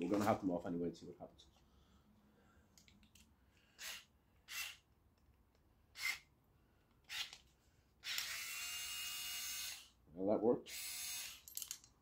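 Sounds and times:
short breaths: 1.6 - 2.8.

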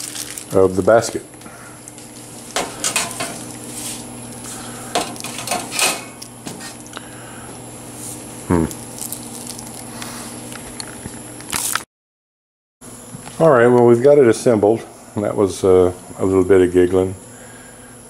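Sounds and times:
metal fryer parts clanking: 2.6 - 3.5, 5.0 - 6.8.

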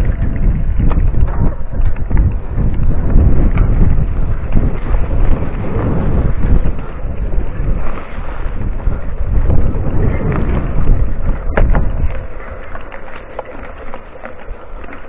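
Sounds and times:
bike knocks and rattles: 0.0 - 8.0, 8.6 - 14.0
wind buffeting microphone: 0.0 - 14.6.

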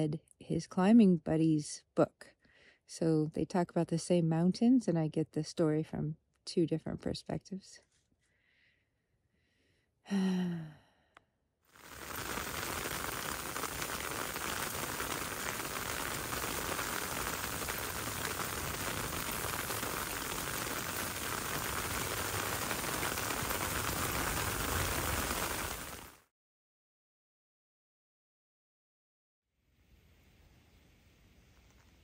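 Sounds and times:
person sighing: 10.1 - 11.1
rain pattering on a tent: 11.8 - 26.3.

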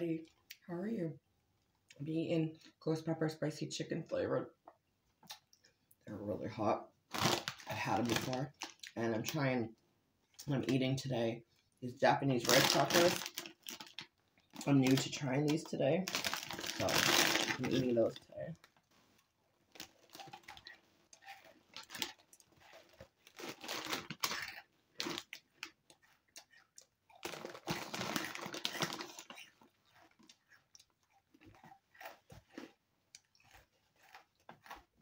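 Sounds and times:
crunching crisp rice crackers: 7.1 - 9.0, 12.3 - 35.0.

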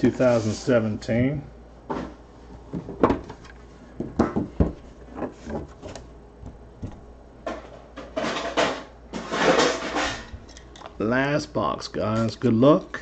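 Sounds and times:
scraping rustle: 0.2 - 0.8.

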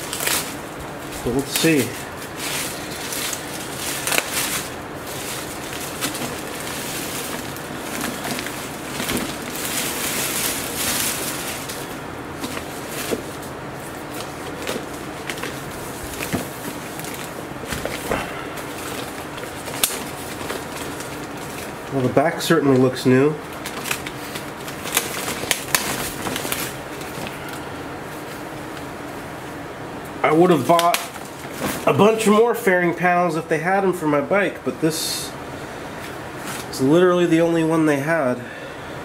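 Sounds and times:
sharp crackles: 0.0 - 22.1
plastic packaging rustling: 0.0 - 29.3, 30.3 - 33.0, 35.9 - 37.0.

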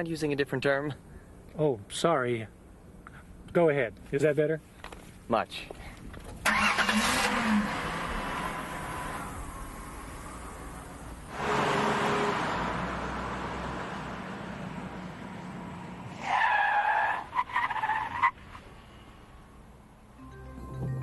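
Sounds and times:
tyre and road noise rush: 6.4 - 20.1.

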